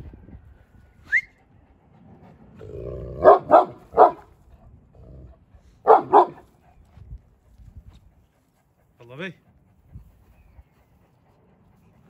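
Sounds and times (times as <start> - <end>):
large dog barking: 2.6 - 4.3, 5.1 - 6.5.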